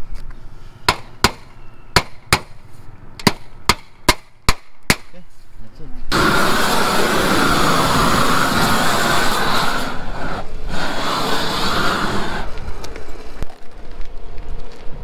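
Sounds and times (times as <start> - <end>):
roofing torch flame jet: 6.1 - 15.0.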